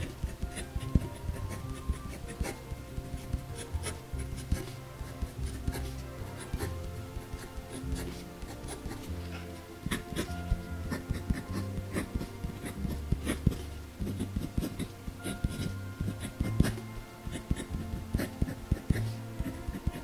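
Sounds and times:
pen scratching on paper: 0.0 - 20.0
soft background music: 0.0 - 20.0.

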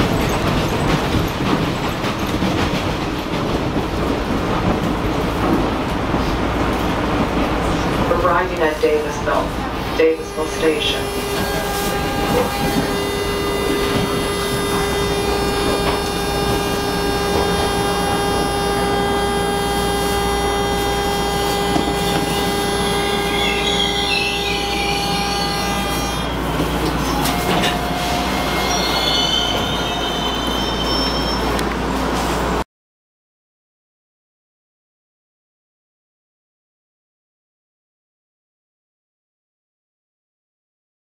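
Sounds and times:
subway car rumble: 0.0 - 32.6
wheels squealing on rails: 10.2 - 32.5.

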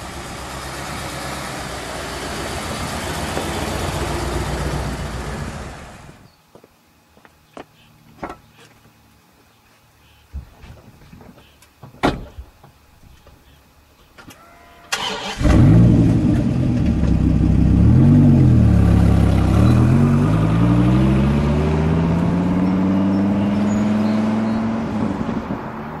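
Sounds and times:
car engine starting and accelerating: 0.0 - 6.2, 14.9 - 26.0.

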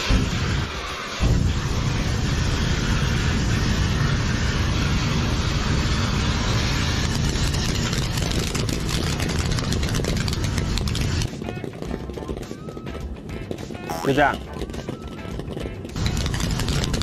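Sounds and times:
aerosol spray flame roaring: 0.0 - 8.6.

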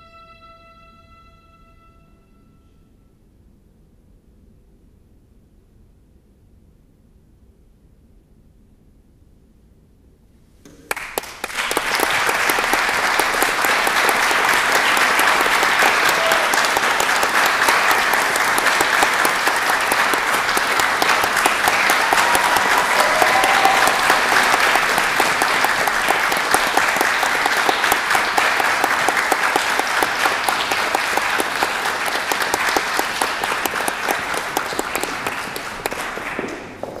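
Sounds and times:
audience applauding: 10.7 - 37.0.

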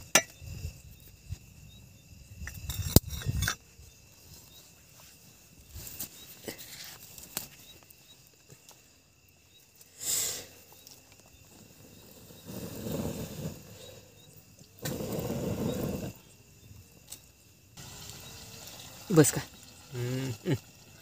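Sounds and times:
wood fire crackling: 10.6 - 21.0.

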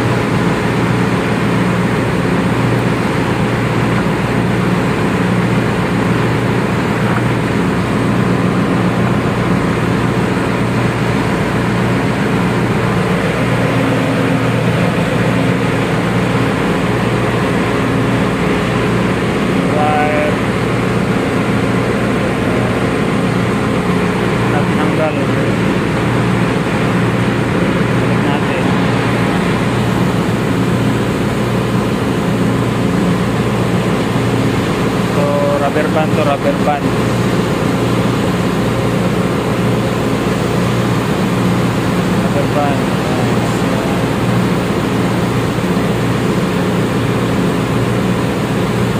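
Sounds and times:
ship engine-room machinery drone: 0.0 - 48.9.

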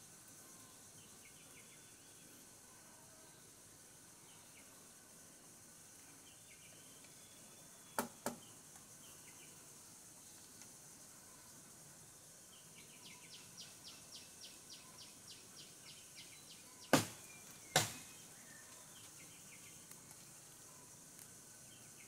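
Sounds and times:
high insect drone: 0.0 - 22.0
sharp knocks: 16.9 - 18.1.

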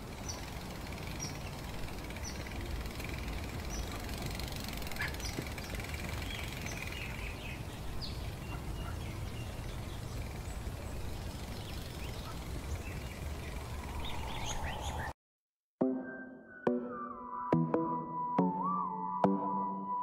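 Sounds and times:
wind rumbling on microphone: 5.2 - 15.1.

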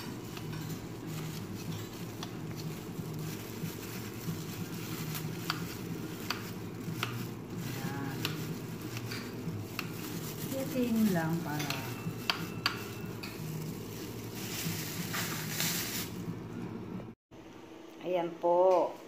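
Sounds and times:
steady low hum: 0.0 - 18.1.

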